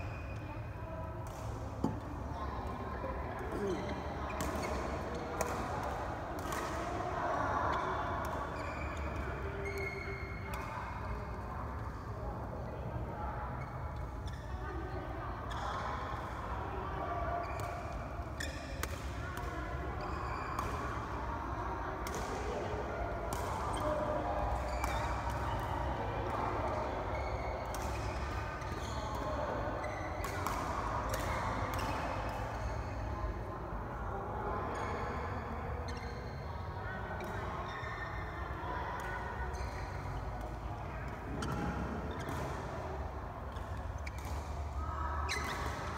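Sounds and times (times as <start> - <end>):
light knocks of shuttle and racket: 1.2 - 7.1, 17.4 - 21.2, 21.9 - 29.2, 29.9 - 33.5, 39.0 - 45.9
court shoes squeaking: 8.2 - 10.7, 26.8 - 29.0, 35.9 - 36.5, 39.0 - 45.9
shoes squeaking on court floor: 43.6 - 45.9.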